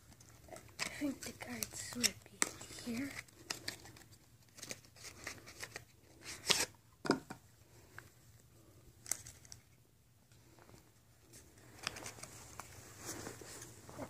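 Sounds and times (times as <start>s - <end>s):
foil wrapper crinkling: 0.0s - 6.7s
cards being handled: 0.0s - 6.8s, 9.0s - 9.8s, 10.4s - 14.0s.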